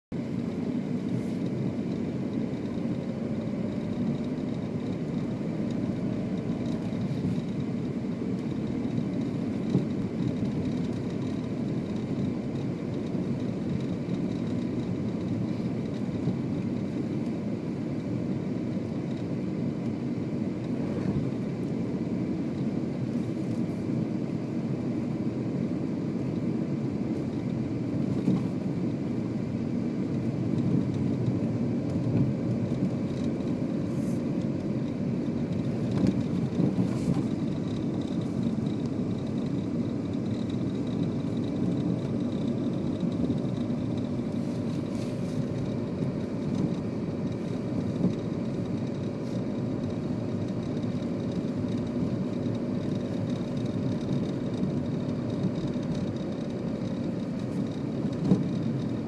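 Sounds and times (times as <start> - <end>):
car engine and tyres rumbling: 0.1 - 59.0.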